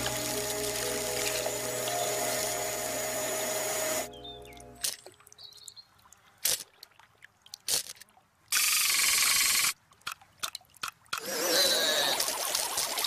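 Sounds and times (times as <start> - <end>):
hissing whirr: 0.0 - 4.1
high chirp: 0.0 - 5.8.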